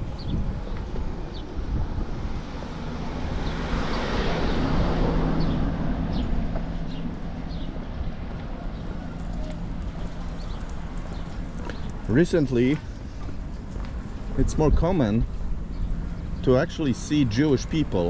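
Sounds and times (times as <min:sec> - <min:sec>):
minibus passing by: 0:00.0 - 0:14.4.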